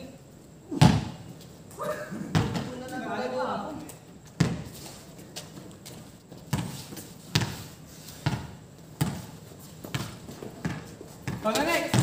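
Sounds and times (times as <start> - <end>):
basketball bouncing on hard court: 0.8 - 1.2, 2.3 - 2.7, 4.4 - 4.7, 6.5 - 12.0.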